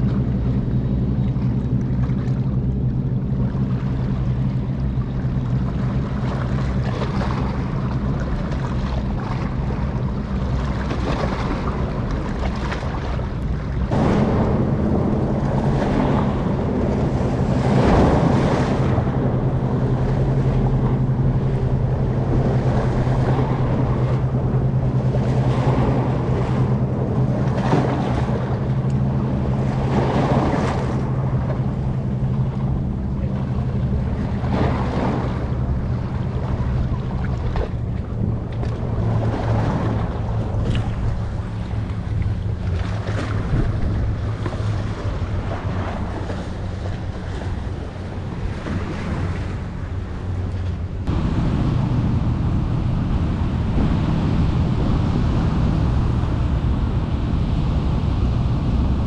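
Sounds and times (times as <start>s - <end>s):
boat diesel engine humming: 0.0s - 59.0s
rushing water: 0.0s - 59.0s
wind buffeting microphone: 0.0s - 59.0s.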